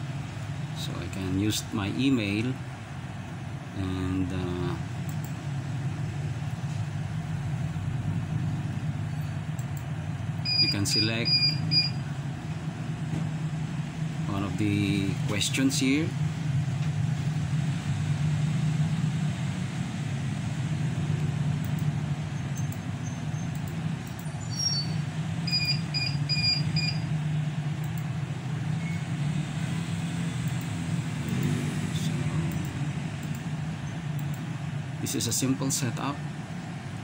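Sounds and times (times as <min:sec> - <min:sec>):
low background hum: 0:00.0 - 0:37.0
high-pitched beeps: 0:10.4 - 0:12.0, 0:24.2 - 0:27.1.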